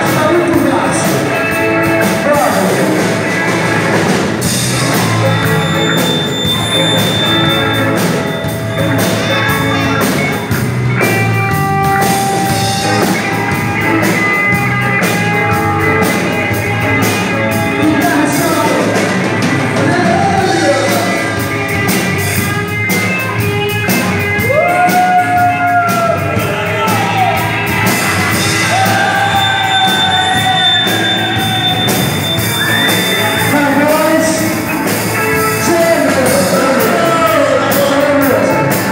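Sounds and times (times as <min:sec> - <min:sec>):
live rock band playing: 0:00.0 - 0:38.9.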